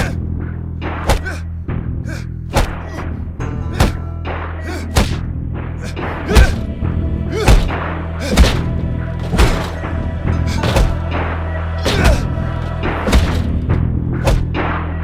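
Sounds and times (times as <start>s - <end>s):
film music with low drone: 0.0s - 15.0s
heavy impact thuds: 3.7s - 14.6s.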